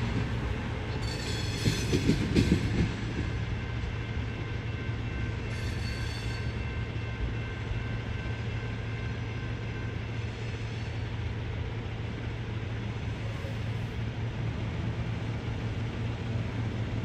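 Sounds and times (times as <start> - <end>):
freight train low drone: 0.0 - 17.0
train wheel squeal: 0.9 - 11.8, 13.1 - 14.0.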